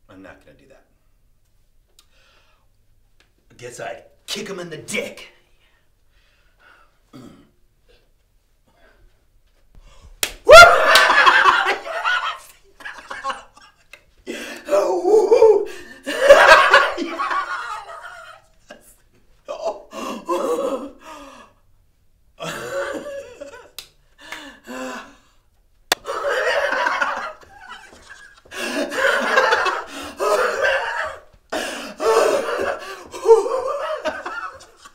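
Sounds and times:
man laughing and yelling: 10.5s - 13.8s, 14.6s - 21.0s, 26.1s - 31.3s, 32.0s - 34.9s.

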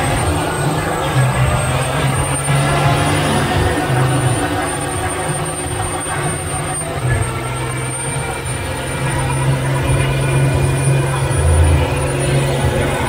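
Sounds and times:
diesel truck engine revving high: 0.0s - 13.0s
wheels spinning on pavement: 0.0s - 13.0s.

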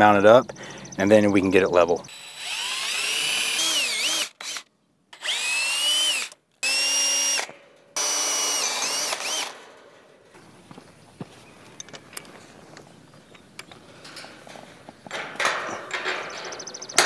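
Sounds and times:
cordless drill motor whine: 2.1s - 4.6s, 5.2s - 9.5s.

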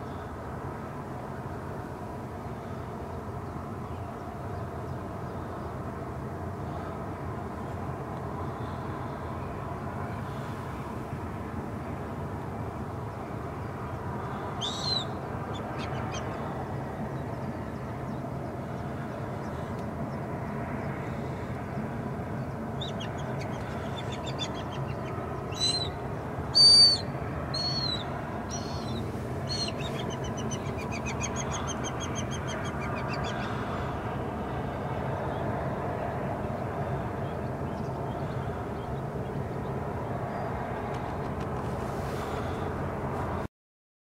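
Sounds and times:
low background hum: 0.0s - 43.5s
birds calling: 14.2s - 16.5s, 20.8s - 34.0s.

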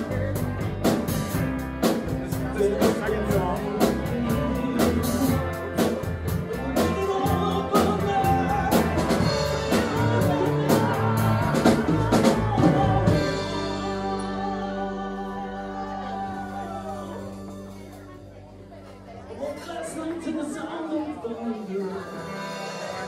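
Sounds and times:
drum kit beat: 0.0s - 15.1s
electric guitars: 0.0s - 20.8s
bass guitar: 0.0s - 23.0s
person singing: 2.3s - 18.1s.

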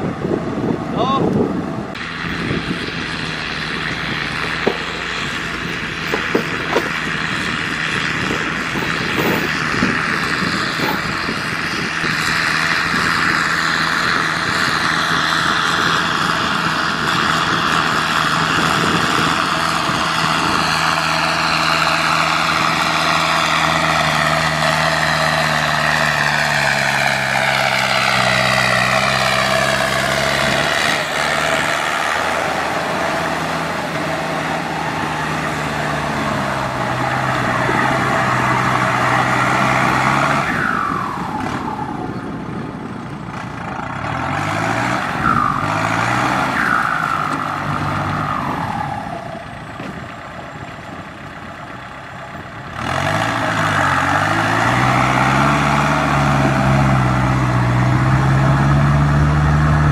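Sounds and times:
tractor diesel engine running: 0.0s - 59.9s
high whines falling in pitch: 29.8s - 42.5s, 45.0s - 49.8s.

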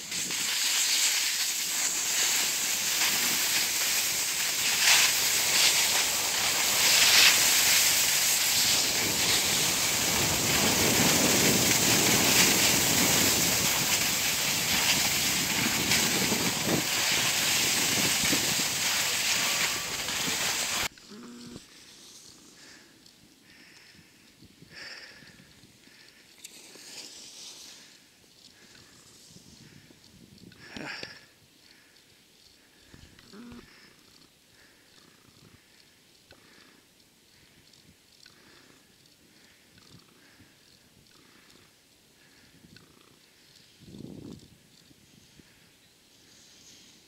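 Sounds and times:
sliding over packed snow: 0.0s - 20.9s, 25.9s - 30.0s
wind buffeting microphone: 2.6s - 20.9s, 43.8s - 45.5s.

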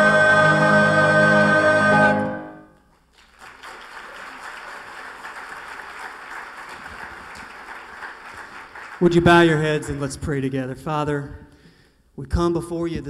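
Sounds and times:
choir with piano: 0.0s - 2.7s
audience applauding: 3.1s - 10.1s.

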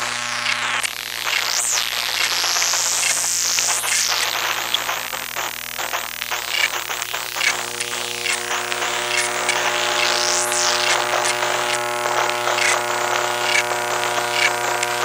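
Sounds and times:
high thin whine: 0.0s - 15.0s
ticking and crackle: 0.0s - 15.0s.

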